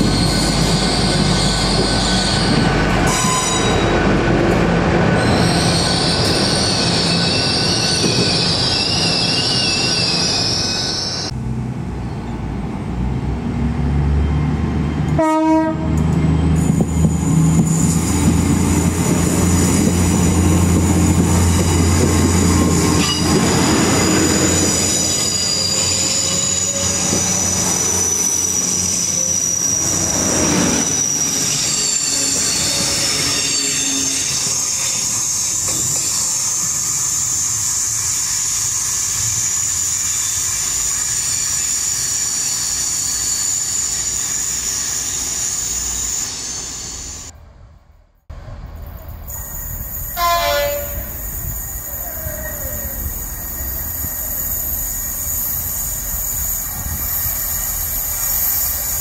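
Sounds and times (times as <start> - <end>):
train wheels squealing on rails: 0.0 - 11.4, 16.0 - 47.4, 48.7 - 59.0
train horn blast: 15.1 - 16.1, 50.2 - 51.2.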